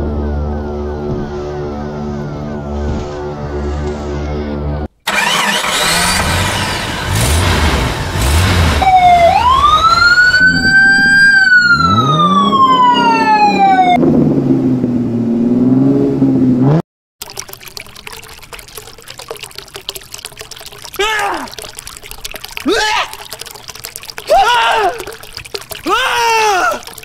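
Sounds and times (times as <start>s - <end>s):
truck engine whine: 5.1s - 16.8s
rough noisy truck sound: 5.7s - 10.1s.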